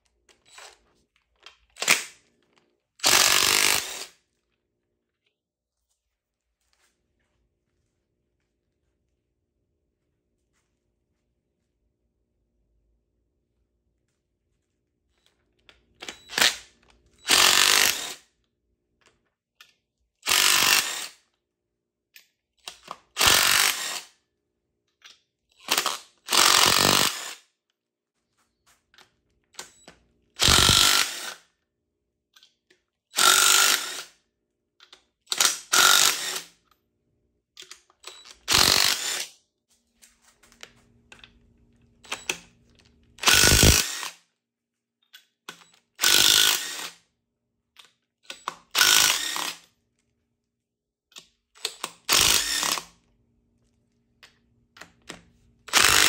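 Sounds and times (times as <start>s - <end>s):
power wrench bursts: 3.0s - 4.2s, 17.2s - 18.2s, 20.3s - 21.2s, 23.2s - 24.1s, 25.7s - 27.4s, 30.4s - 31.4s, 33.2s - 34.1s, 35.3s - 36.5s, 38.5s - 39.3s, 43.2s - 44.2s, 46.0s - 47.0s, 48.7s - 49.6s, 51.8s - 52.9s, 55.7s - 56.0s.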